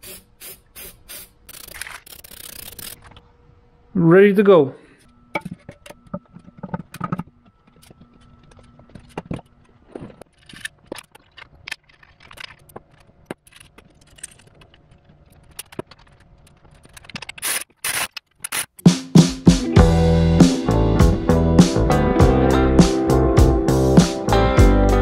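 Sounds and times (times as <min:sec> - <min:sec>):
faint steady hum: 0:02.5 - 0:17.0.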